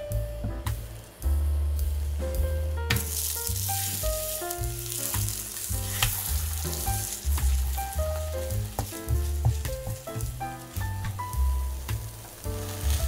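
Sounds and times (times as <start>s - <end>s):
food sizzling in oil: 2.9s - 13.0s
spatula tapping pan: 2.9s - 13.0s.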